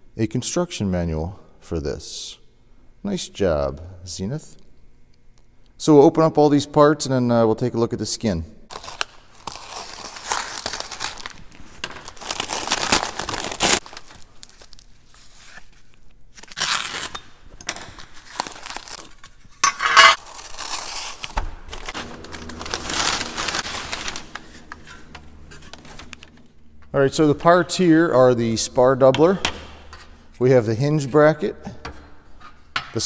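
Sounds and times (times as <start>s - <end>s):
paper and plastic wrapping tearing: 8.7s - 19.6s, 20.2s - 26.5s.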